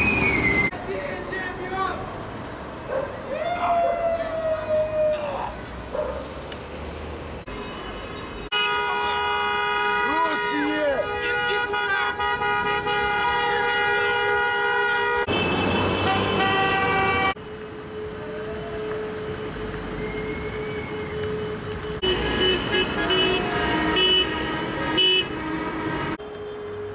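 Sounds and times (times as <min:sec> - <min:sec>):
traffic noise: 0:00.0 - 0:26.9
car horns honking: 0:07.5 - 0:17.4, 0:21.2 - 0:26.9.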